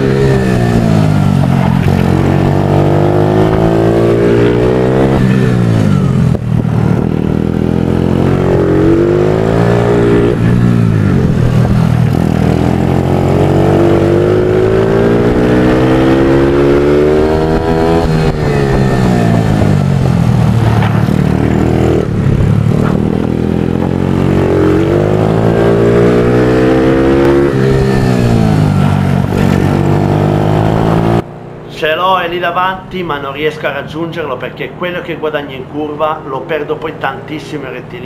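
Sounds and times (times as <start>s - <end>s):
motorcycle engine revving: 0.0s - 31.6s.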